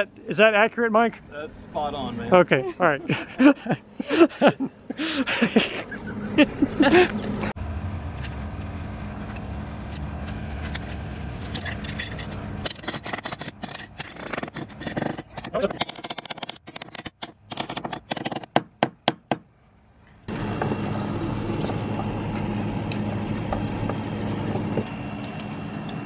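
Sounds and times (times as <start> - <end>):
low outdoor rumble: 0.0 - 16.9, 19.6 - 26.0
people laughing: 2.4 - 7.4.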